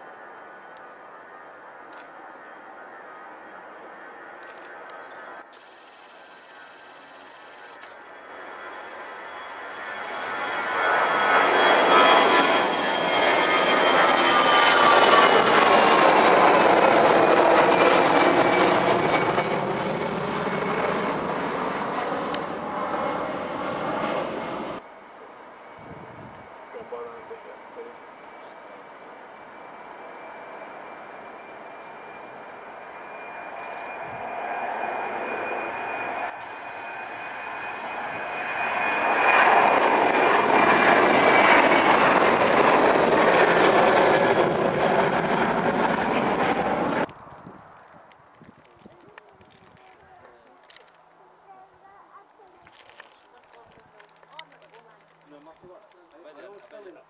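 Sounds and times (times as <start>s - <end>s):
jet engines roaring: 3.1s - 48.4s
high fan whine: 24.8s - 30.4s, 35.7s - 40.0s.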